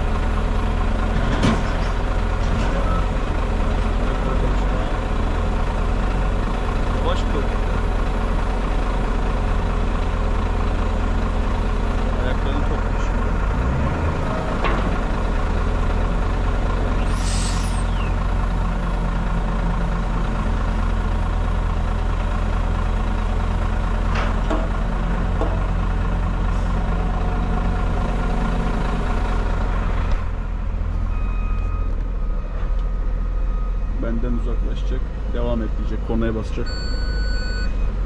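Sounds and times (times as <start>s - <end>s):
diesel engines running: 0.0s - 38.0s
air release hiss: 17.0s - 17.9s.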